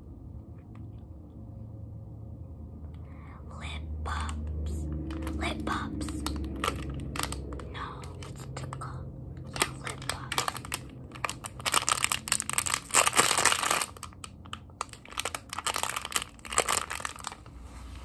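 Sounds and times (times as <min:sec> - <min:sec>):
plastic wrapper crinkling: 0:04.1 - 0:17.6.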